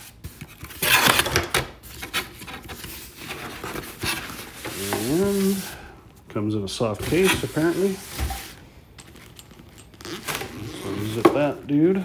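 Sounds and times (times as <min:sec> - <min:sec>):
cardboard flaps scraping rustle: 0:00.0 - 0:05.9, 0:07.0 - 0:08.6, 0:10.0 - 0:11.6.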